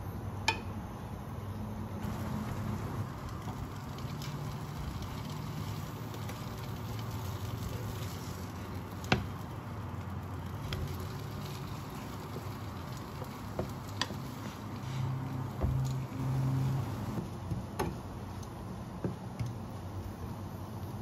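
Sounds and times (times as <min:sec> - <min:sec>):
cabbage sizzling in a pan: 0:02.1 - 0:17.2
spatula stirring and scraping: 0:03.4 - 0:17.2.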